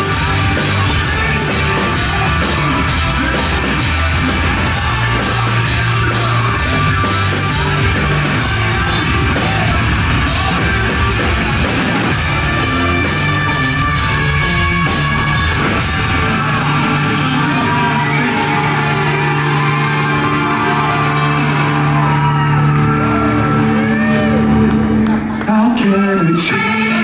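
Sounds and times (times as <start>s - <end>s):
pounding drums: 0.0s - 20.9s
person singing: 0.0s - 21.8s, 25.5s - 27.0s
bass guitar: 0.0s - 27.0s
electric guitar: 0.0s - 27.0s.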